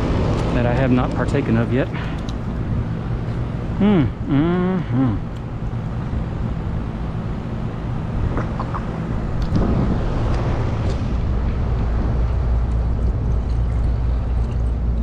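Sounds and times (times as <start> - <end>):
air conditioning unit humming: 0.0 - 15.0.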